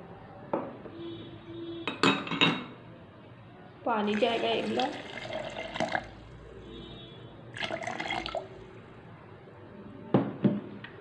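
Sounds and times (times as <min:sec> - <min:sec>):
water pouring and splashing: 0:04.0 - 0:06.2, 0:07.6 - 0:08.6.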